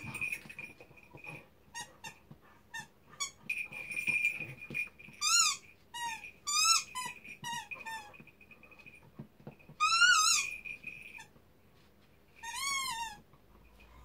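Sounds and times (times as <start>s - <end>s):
squeaky toy squeaking: 1.3s - 8.2s, 9.8s - 11.3s, 12.3s - 14.0s.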